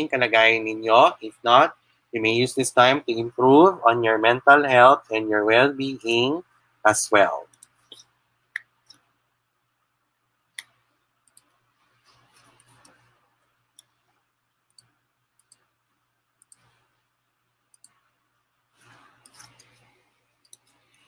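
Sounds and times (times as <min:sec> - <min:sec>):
computer mouse clicks: 0:07.5 - 0:09.1, 0:10.6 - 0:11.6, 0:12.2 - 0:13.0, 0:14.7 - 0:15.7, 0:16.4 - 0:16.9, 0:17.7 - 0:18.0, 0:18.8 - 0:21.0
soft brushing noise: 0:11.7 - 0:14.3, 0:18.7 - 0:21.0.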